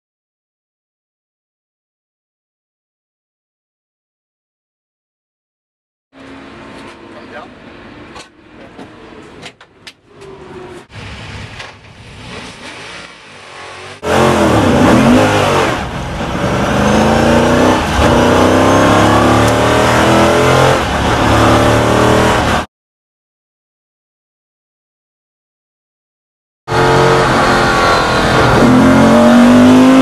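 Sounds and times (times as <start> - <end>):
race car engine accelerating: 10.1 - 22.7, 26.7 - 30.0.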